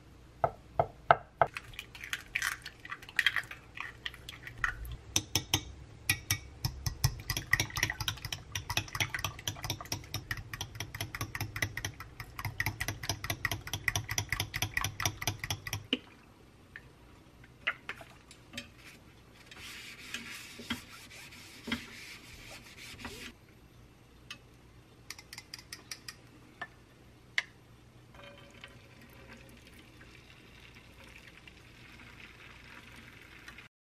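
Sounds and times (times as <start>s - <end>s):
chopsticks beating eggs in glass bowl: 5.2s - 15.9s
paper towel rubbing a pan: 18.8s - 23.3s.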